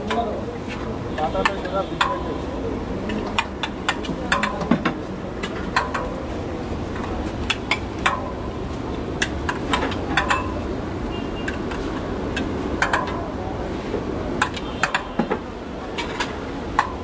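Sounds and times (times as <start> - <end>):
metal spoon clinking on pot: 9.2 - 10.6.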